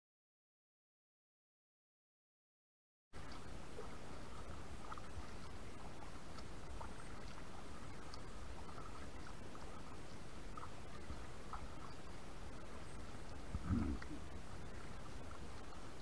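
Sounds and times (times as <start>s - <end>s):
water lapping against kayak: 3.2s - 16.0s
wind rumble on microphone: 13.0s - 16.0s.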